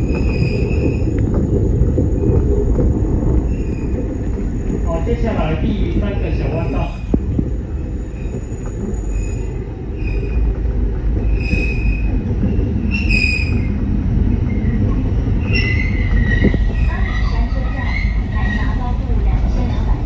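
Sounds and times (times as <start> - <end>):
train wheel squeals: 0.0 - 1.2, 3.5 - 4.7, 7.9 - 10.6, 11.2 - 13.8, 15.4 - 18.9
train rumble inside carriage: 0.0 - 20.0.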